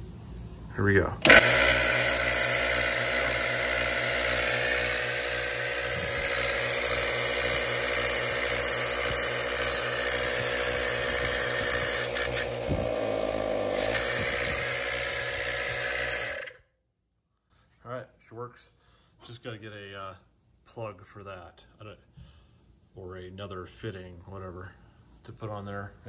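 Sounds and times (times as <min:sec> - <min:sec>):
air compressor running: 0:01.2 - 0:16.6
compressor clicks: 0:01.2 - 0:16.6.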